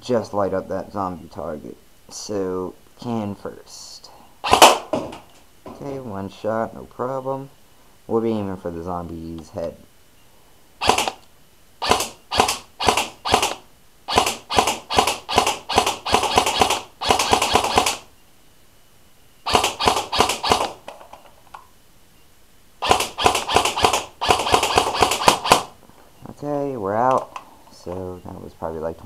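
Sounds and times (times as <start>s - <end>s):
airsoft gun firing: 4.4s - 5.0s, 10.8s - 11.2s, 11.8s - 18.1s, 19.5s - 20.9s, 22.8s - 25.8s.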